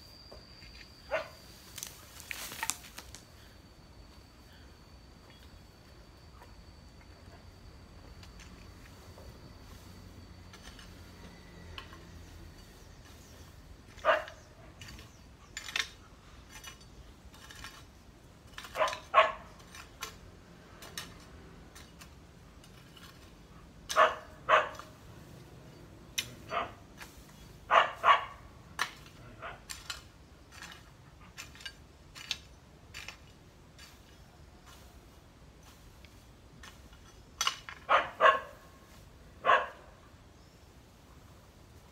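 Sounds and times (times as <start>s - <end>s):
dog barking: 14.0s - 14.4s, 18.8s - 19.4s, 23.9s - 24.8s, 27.7s - 28.4s, 37.9s - 38.6s, 39.4s - 39.9s.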